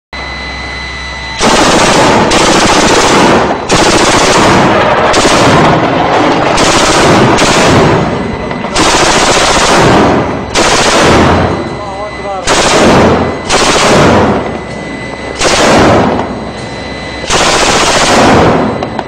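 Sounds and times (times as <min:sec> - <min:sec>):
autocannons firing rapid bursts: 0:01.4 - 0:11.7, 0:12.4 - 0:14.6, 0:15.4 - 0:16.4, 0:17.2 - 0:19.0.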